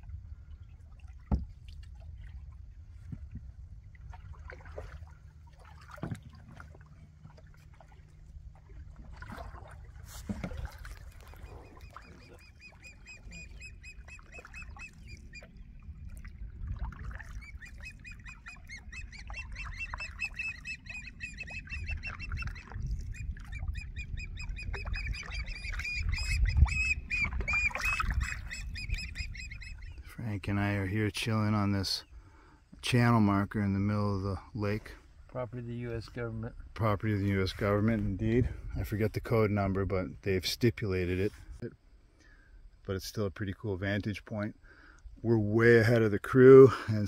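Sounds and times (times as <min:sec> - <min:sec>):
wind rumble on microphone: 0:00.0 - 0:05.4, 0:15.0 - 0:18.2, 0:18.8 - 0:30.1, 0:36.4 - 0:40.3
eagles chittering: 0:11.1 - 0:15.6, 0:17.4 - 0:30.1.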